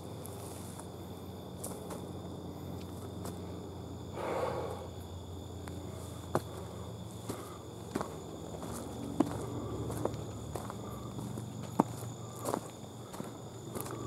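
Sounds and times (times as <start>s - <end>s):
footsteps on dirt and leaves: 5.6s - 14.0s.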